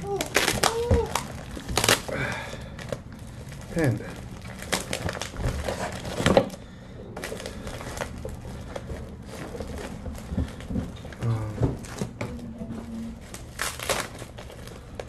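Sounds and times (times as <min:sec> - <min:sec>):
packing material rustling: 0:00.0 - 0:15.0.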